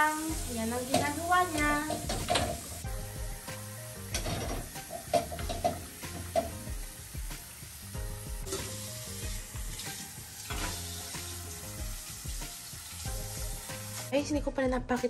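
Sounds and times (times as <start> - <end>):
dishes clinking and scraping: 1.9 - 2.7, 4.1 - 6.6, 10.5 - 10.8.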